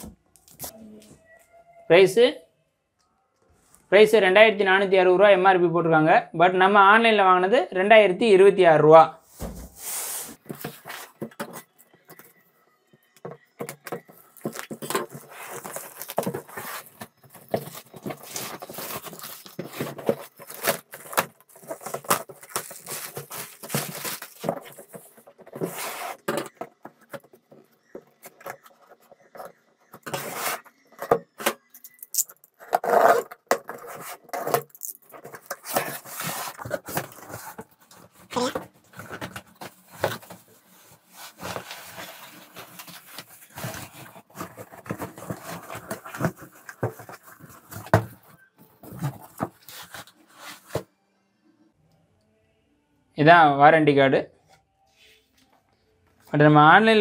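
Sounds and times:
cardboard scraping and rustling: 9.3 - 12.4, 13.3 - 31.7, 32.6 - 50.9.

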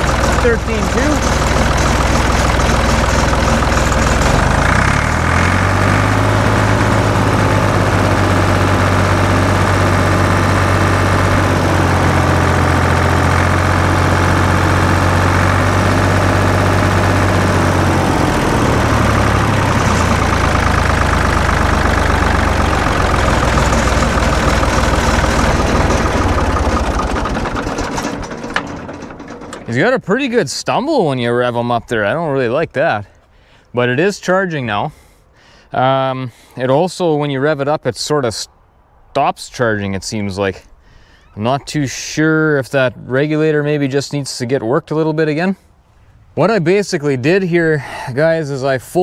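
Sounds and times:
tractor engine revving: 0.0 - 32.6.

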